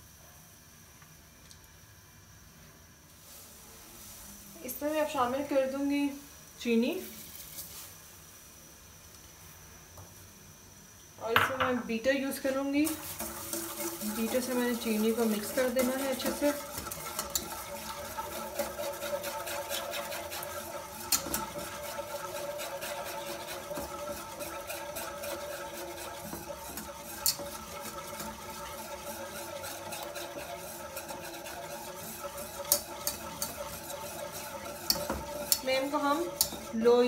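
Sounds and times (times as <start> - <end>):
whisk clicking against pan: 12.9 - 37.0
whisk swishing in milk: 12.9 - 37.0.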